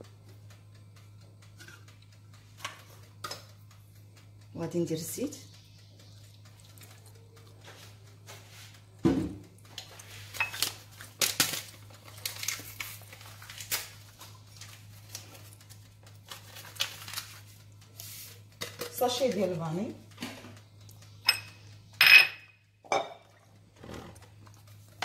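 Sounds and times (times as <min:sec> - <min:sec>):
steady low hum: 0:00.0 - 0:25.0
dishes and utensils clinking: 0:10.3 - 0:10.7, 0:21.3 - 0:23.4.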